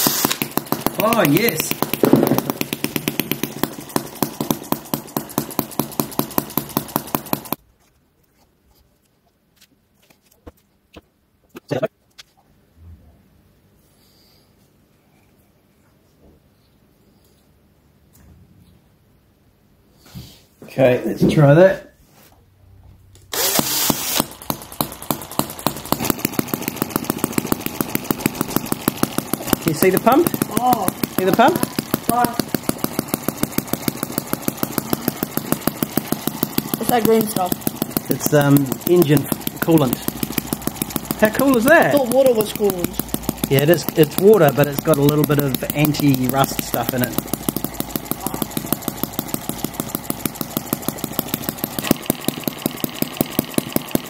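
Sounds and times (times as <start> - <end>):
cordless drill spinning: 0.0 - 7.6, 23.3 - 54.0
model engine running: 0.0 - 7.6, 23.3 - 54.0.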